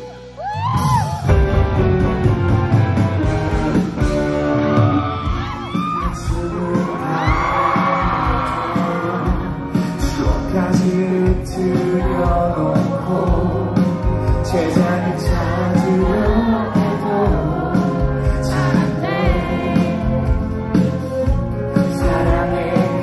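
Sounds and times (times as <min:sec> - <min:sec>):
live rock band: 0:00.0 - 0:23.0
man singing lead vocals: 0:05.7 - 0:23.0.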